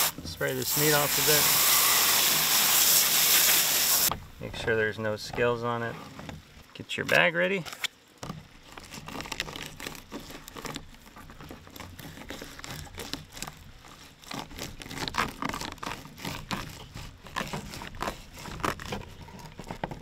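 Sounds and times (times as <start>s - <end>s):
knife scraping fish skin: 8.7s - 20.0s.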